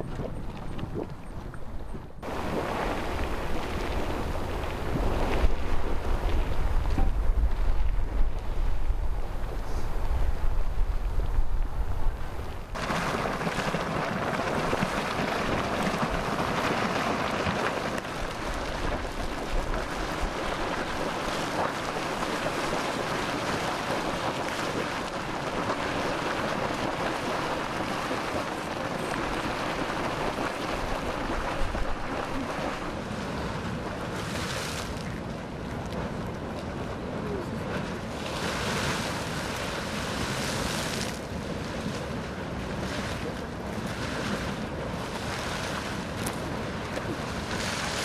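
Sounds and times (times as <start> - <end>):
water boiling and splashing: 0.0 - 48.0
wind on microphone: 0.0 - 48.0.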